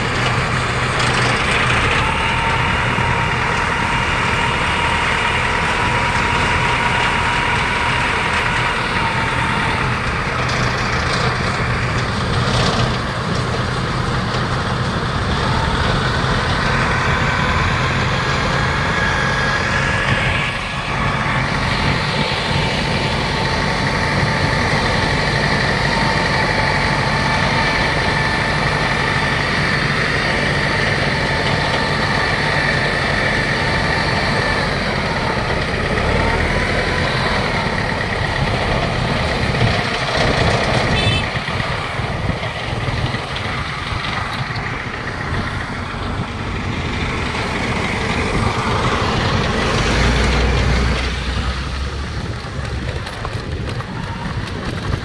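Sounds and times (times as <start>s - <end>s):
combine harvester rumble: 0.0s - 55.0s
high machine whine: 14.0s - 50.2s.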